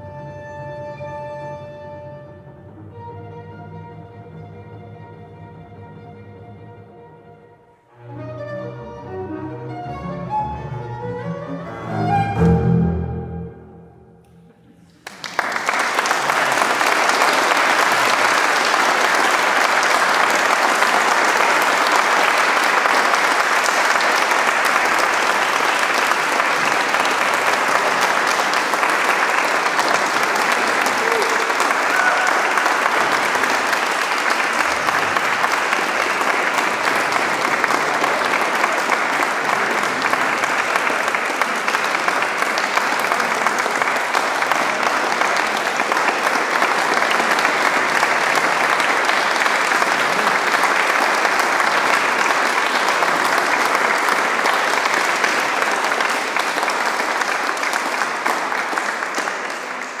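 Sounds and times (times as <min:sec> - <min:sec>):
audience applauding: 0:14.6 - 1:00.0.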